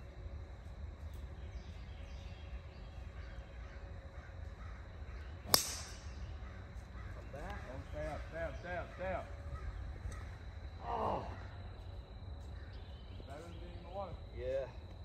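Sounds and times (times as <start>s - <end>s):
golf club striking ball: 5.5s - 6.2s.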